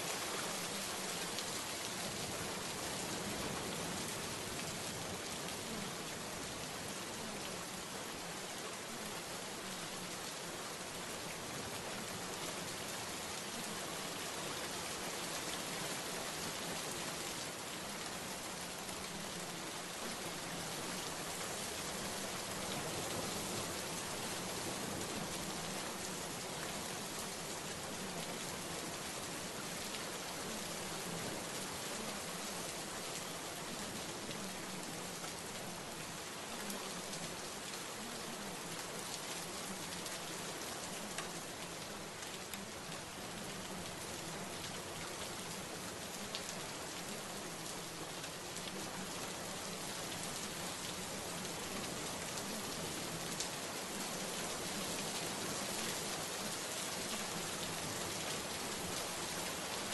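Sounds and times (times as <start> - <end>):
steady rain hiss: 0.0 - 59.9.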